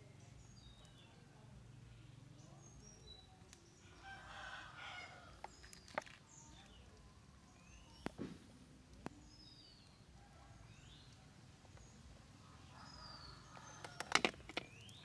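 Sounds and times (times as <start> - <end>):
small birds chirping: 0.0 - 15.0
rooster crowing: 4.0 - 5.4, 12.4 - 14.2.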